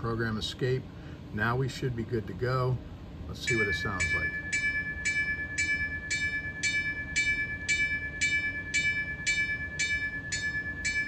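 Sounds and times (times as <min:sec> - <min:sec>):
locomotive bell from small speaker: 0:03.4 - 0:11.0.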